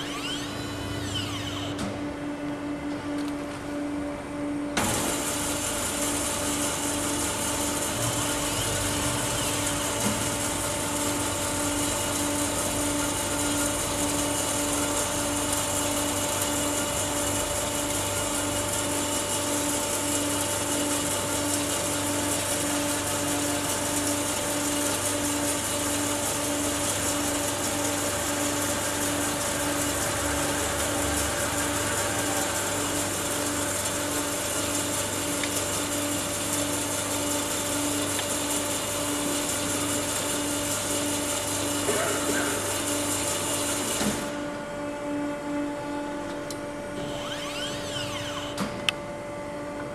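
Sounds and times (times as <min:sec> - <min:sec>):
band saw mechanical hum: 0:00.0 - 0:04.8, 0:44.2 - 0:49.9.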